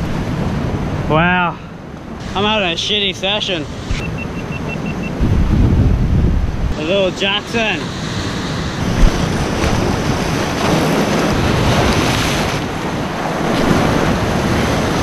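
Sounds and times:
wind buffeting microphone: 3.7 - 6.9, 7.8 - 15.0
surf breaking over rocks: 6.7 - 15.0.

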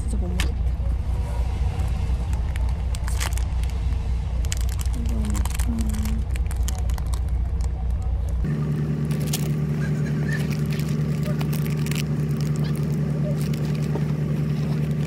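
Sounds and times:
bus engine and road rumble: 0.0 - 15.0
snack wrappers crinkling: 2.3 - 8.0, 8.8 - 15.0
bag being rummaged: 10.2 - 15.0.

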